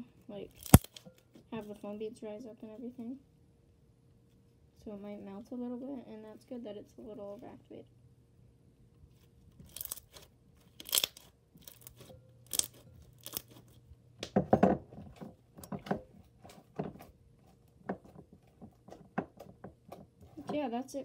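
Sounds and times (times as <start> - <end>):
slime crackling and popping: 0.6 - 1.0, 9.6 - 13.7.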